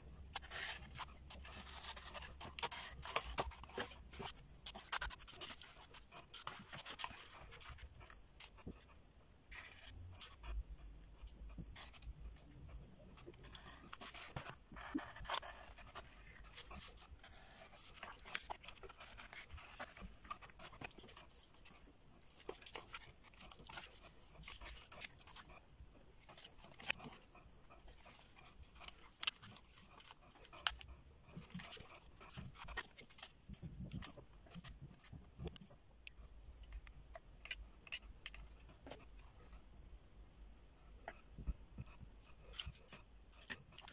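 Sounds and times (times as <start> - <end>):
paper rustling and scraping: 0.2 - 8.8, 9.5 - 10.4, 13.2 - 25.6, 26.2 - 35.7.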